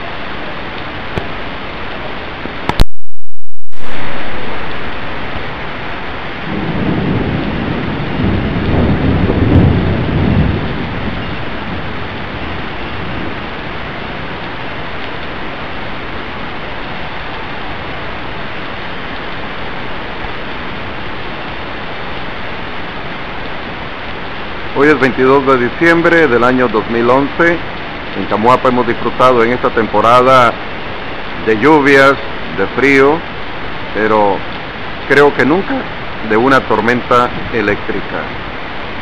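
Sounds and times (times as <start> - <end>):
heavy rain: 0.0 - 39.0
thunder rumbling: 2.6 - 17.9.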